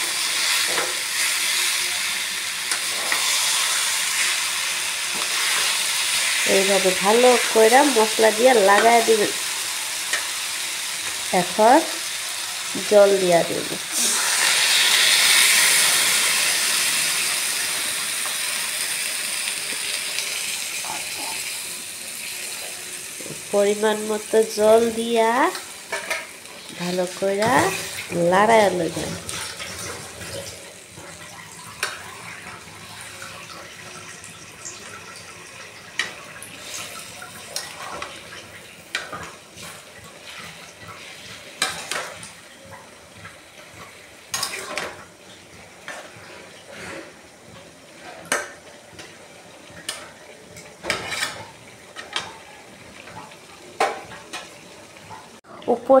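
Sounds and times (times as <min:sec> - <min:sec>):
curry sizzling and simmering: 0:00.0 - 0:56.0
metal spatula scraping a pan: 0:50.8 - 0:52.3.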